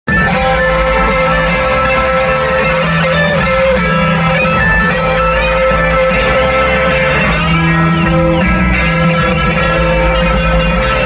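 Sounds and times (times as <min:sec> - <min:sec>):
bass: 0:00.1 - 0:11.0
drums: 0:00.1 - 0:11.0
electric guitars: 0:00.1 - 0:11.0.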